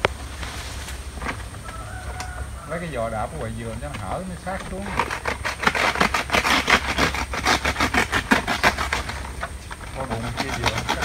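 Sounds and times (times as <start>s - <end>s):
palm fronds rustling and crackling: 0.0s - 11.0s.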